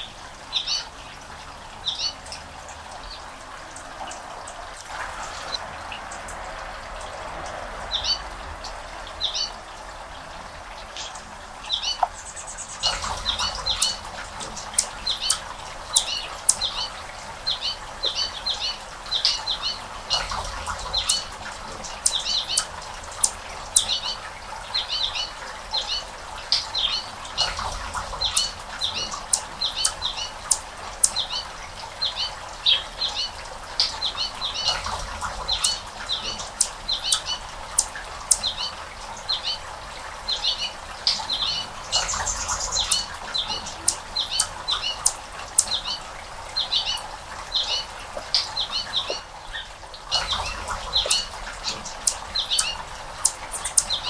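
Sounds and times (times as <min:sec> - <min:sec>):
small bird chirping: 0:11.7 - 0:16.9, 0:22.0 - 0:24.2, 0:24.8 - 0:31.5, 0:32.1 - 0:38.7, 0:40.3 - 0:46.0, 0:50.1 - 0:54.0.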